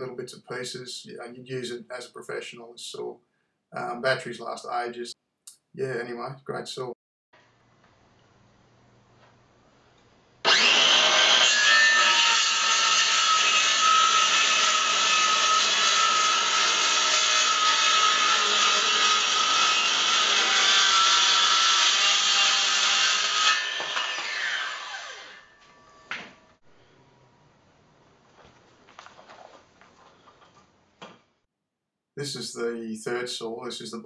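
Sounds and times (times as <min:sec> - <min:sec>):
circular saw cutting wood: 0:10.4 - 0:26.4
saw blade spinning down: 0:10.4 - 0:26.5.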